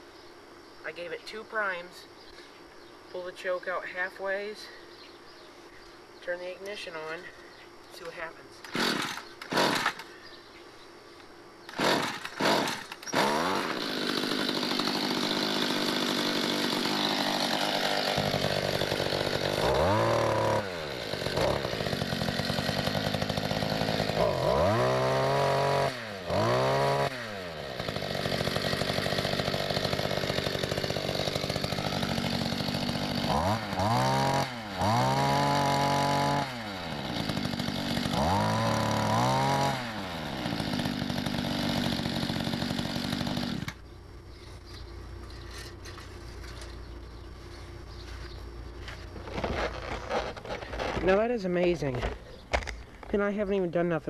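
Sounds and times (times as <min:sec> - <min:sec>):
two-stroke engine revving: 0:08.6 - 0:10.0, 0:11.7 - 0:43.8.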